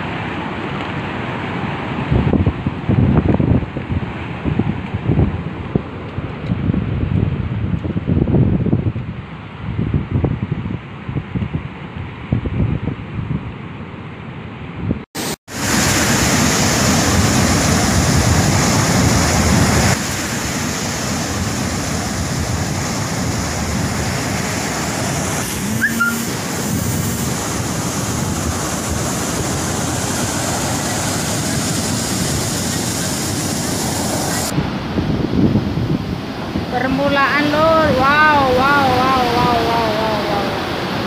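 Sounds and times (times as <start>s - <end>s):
sea surf breaking: 0.0s - 6.8s, 15.2s - 41.0s
wind on microphone: 1.8s - 13.9s, 14.7s - 41.0s.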